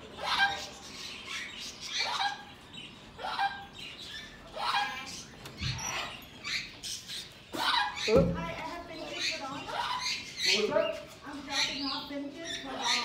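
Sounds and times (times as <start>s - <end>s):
parrot raspy squawks: 0.2s - 2.5s, 3.2s - 3.8s, 4.5s - 6.8s, 7.5s - 8.2s.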